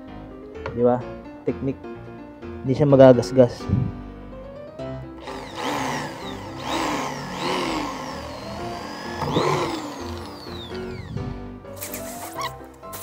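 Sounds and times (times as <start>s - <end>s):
electric drill boring acrylic: 5.2s - 11.3s.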